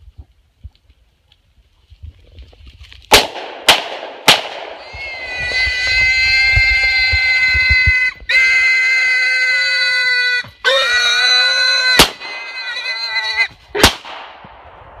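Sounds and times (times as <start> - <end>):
pistol shots: 3.1 - 4.8, 12.0 - 12.4, 13.8 - 14.6
hog squealing: 4.8 - 13.5.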